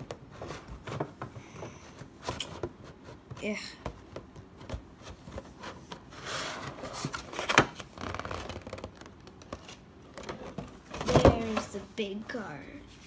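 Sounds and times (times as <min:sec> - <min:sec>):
plastic tray scraping: 0:05.2 - 0:12.0.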